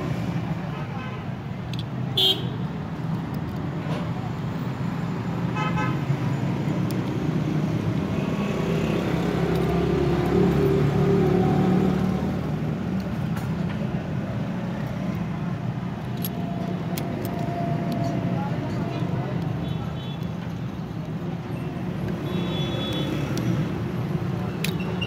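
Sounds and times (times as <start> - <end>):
car horn toot: 2.2 - 2.6
vehicle engines running: 2.7 - 25.0
vehicle passing: 7.2 - 12.8.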